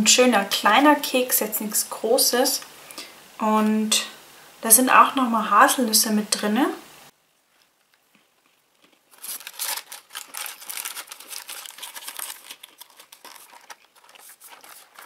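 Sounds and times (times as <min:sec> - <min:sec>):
biscuit crunching being chewed: 0:07.5 - 0:15.0.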